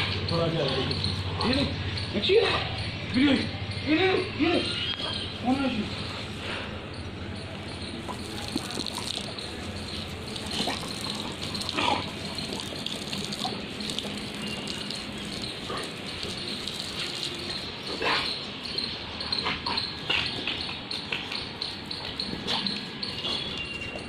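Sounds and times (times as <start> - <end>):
hose spraying water: 8.0 - 18.0
water splashes: 8.0 - 18.0.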